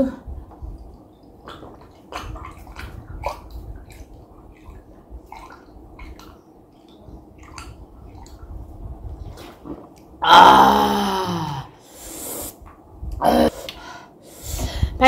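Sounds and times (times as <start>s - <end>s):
person gulping a drink: 1.4s - 4.0s.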